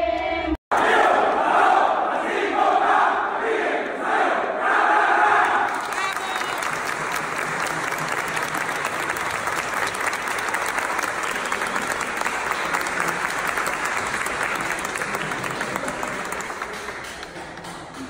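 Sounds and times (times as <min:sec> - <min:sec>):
crowd applauding: 0:05.4 - 0:18.0.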